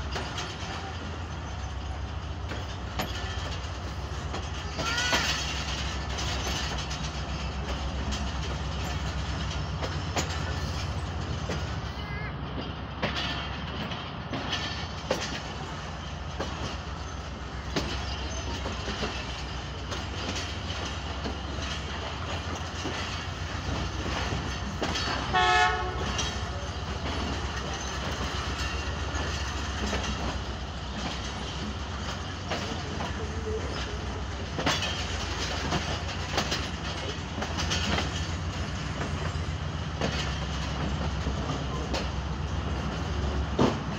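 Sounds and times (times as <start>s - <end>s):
train low rumble: 0.0s - 43.9s
wheels clacking over rail joints: 0.0s - 43.9s
locomotive horn blast: 25.2s - 26.3s.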